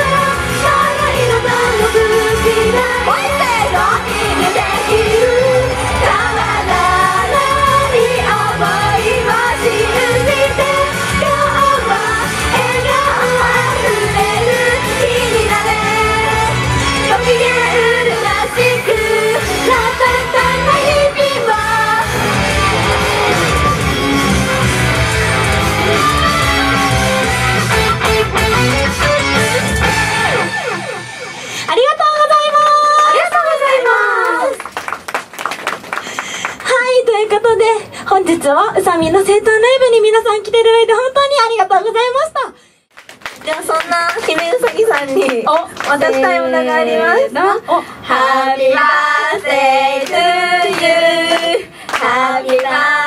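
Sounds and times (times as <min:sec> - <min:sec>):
group singing pop song: 0:00.0 - 0:23.5, 0:48.0 - 0:53.0
loud backing track: 0:00.0 - 0:31.8.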